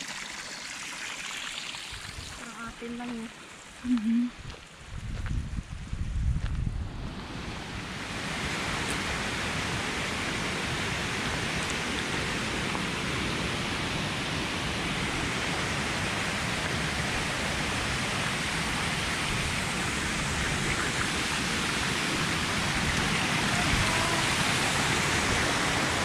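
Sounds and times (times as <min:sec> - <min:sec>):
stream rushing over rocks: 0:07.2 - 0:26.0.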